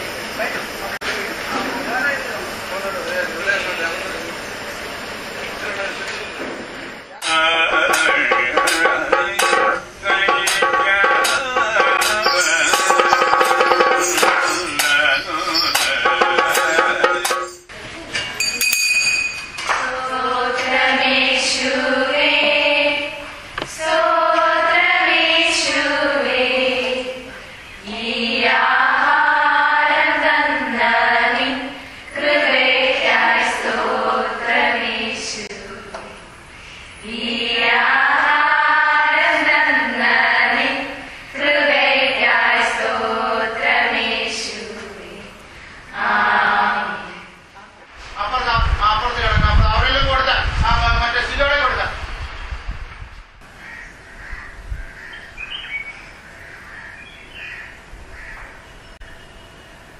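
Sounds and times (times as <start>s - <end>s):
steady background hum: 0.0s - 59.9s
voices chanting: 7.2s - 17.7s, 19.7s - 47.5s
crows cawing: 53.5s - 55.4s, 56.2s - 58.6s.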